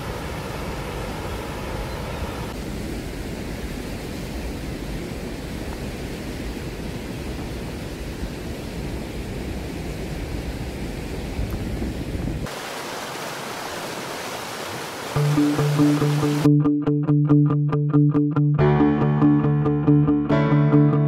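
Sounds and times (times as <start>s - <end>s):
flowing water rushing: 0.0s - 11.5s, 12.4s - 16.5s.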